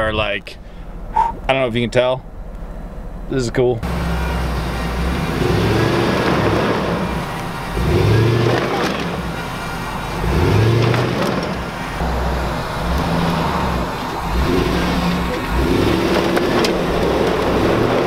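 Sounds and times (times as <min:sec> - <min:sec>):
truck engine revving: 0:00.7 - 0:18.0
tyres spinning in dirt: 0:03.9 - 0:18.0.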